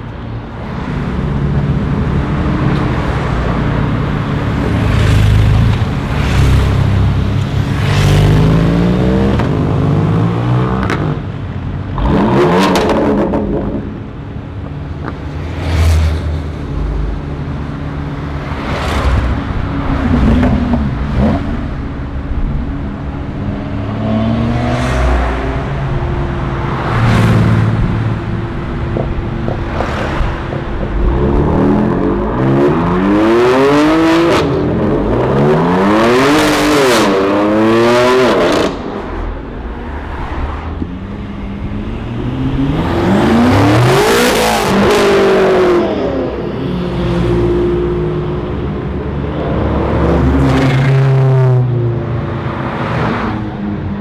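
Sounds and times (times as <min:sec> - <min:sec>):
car engines revving hard: 0:00.4 - 0:54.0.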